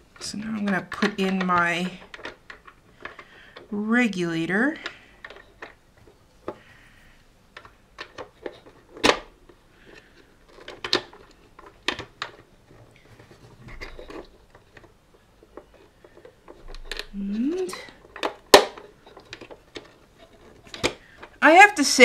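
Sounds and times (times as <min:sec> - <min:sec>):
plastic parts clicking: 0:00.1 - 0:03.7, 0:04.7 - 0:06.7, 0:07.5 - 0:21.4
handling rustle: 0:04.8 - 0:21.4.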